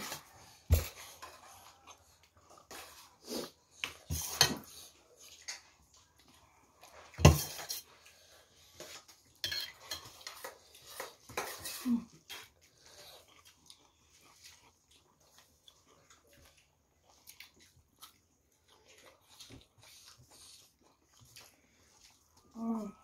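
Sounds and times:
clinks and scrapes on plates: 2.6s - 5.7s, 7.1s - 12.5s.

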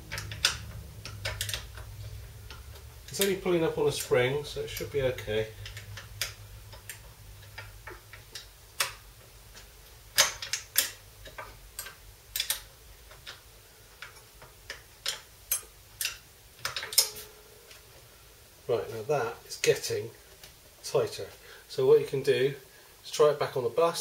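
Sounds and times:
spanner clicking on nut: 0.0s - 17.3s.

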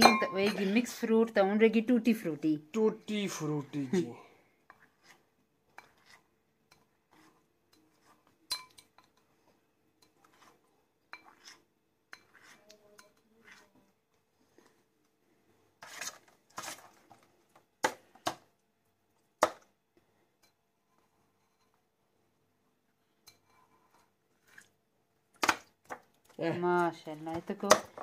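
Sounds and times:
knife scraping ceramic bowl: 4.6s - 9.4s, 10.0s - 14.9s, 15.8s - 17.2s, 20.4s - 21.9s, 23.2s - 24.8s.

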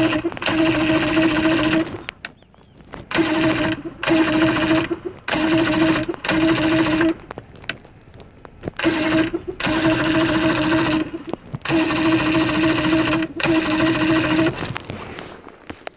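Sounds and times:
electric starter cranking engine: 0.0s - 2.2s, 3.0s - 7.2s, 8.8s - 15.0s.

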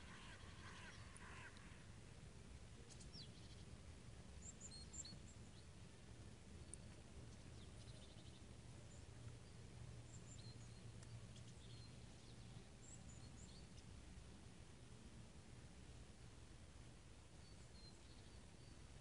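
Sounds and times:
birds chirping: 0.0s - 1.8s
low hum: 0.0s - 18.9s.

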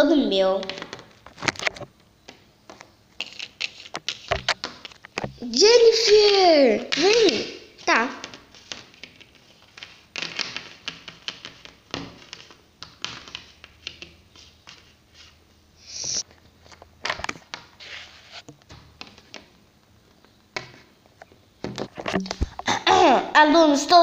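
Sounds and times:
short hiss: 15.8s - 16.2s.

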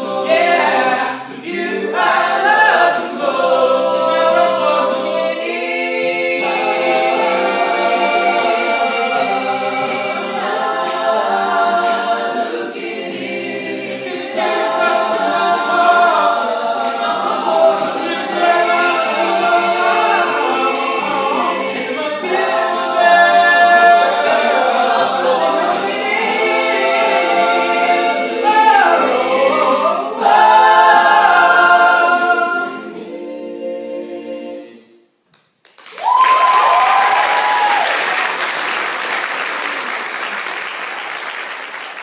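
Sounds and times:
male a cappella group singing: 0.0s - 35.0s
audience applause: 35.7s - 42.0s
person whooping: 35.9s - 38.1s.

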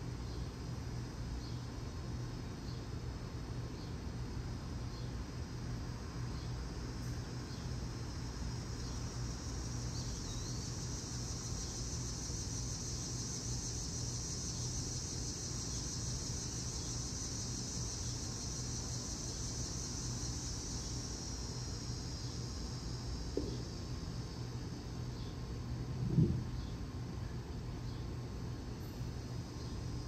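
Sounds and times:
high-pitched insect chorus: 0.0s - 30.0s
low steady hum: 0.0s - 30.0s.

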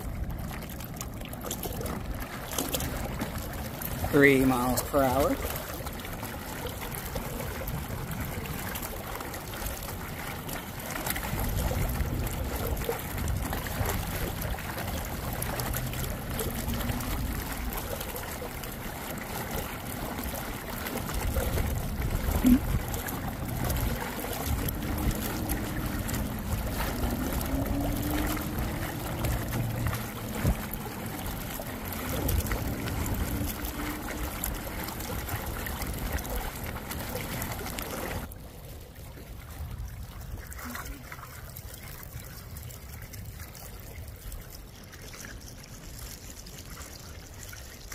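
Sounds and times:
water lapping along hull: 0.0s - 47.9s
low rumble: 21.1s - 38.3s.

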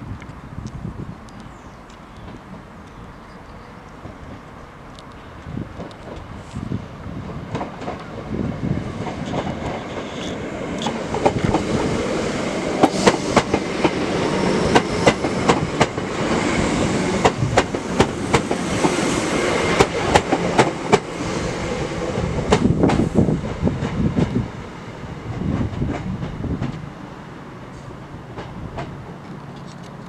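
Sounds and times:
electric train rumbling past: 2.2s - 30.0s
train wheels clacking over rail joints: 12.8s - 16.1s, 17.2s - 19.1s, 19.7s - 21.1s.

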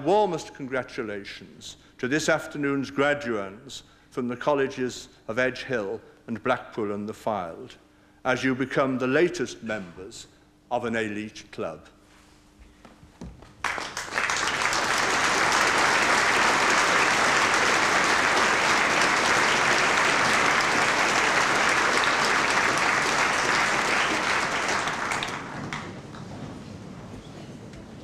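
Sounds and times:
large audience applauding: 13.6s - 26.2s.

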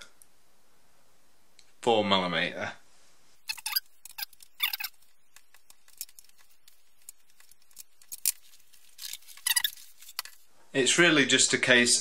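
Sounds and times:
allen key clicking and scraping: 3.5s - 10.4s.

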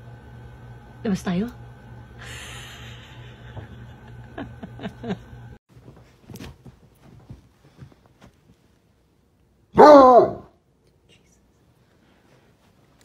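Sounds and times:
low steady hum: 0.0s - 9.6s.

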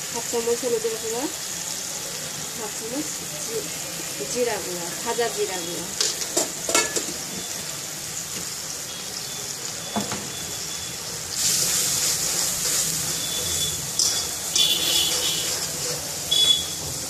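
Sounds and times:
spice paste sizzling in oil: 0.0s - 17.0s
metal spatula stirring: 11.4s - 16.3s.

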